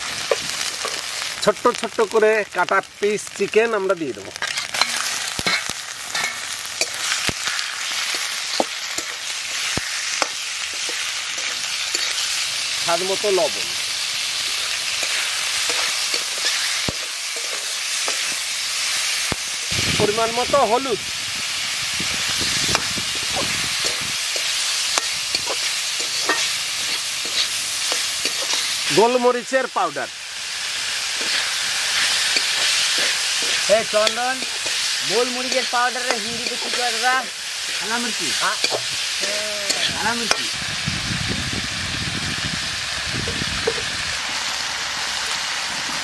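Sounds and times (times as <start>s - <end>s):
chicken sizzling in hot oil: 0.0s - 46.0s
metal spatula scraping pan: 4.4s - 7.2s, 23.4s - 28.8s.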